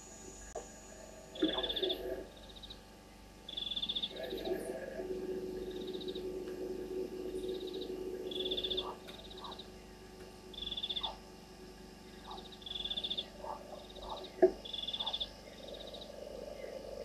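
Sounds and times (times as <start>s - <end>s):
frogs trilling: 0.0s - 17.0s
low drone: 0.0s - 17.0s
low falling frog notes: 1.3s - 2.8s, 3.4s - 17.0s.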